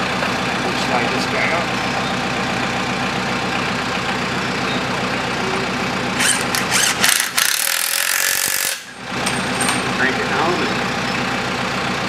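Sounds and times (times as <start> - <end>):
tractor engine idling: 0.0 - 8.2, 8.8 - 12.0
cordless drill bursts: 6.2 - 8.9.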